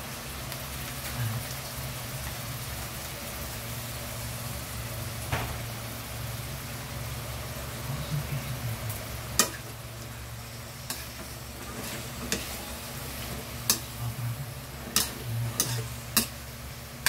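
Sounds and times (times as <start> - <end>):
frying sizzle: 0.0 - 17.0
metal spatula scraping a wok: 10.5 - 14.0, 14.6 - 16.5.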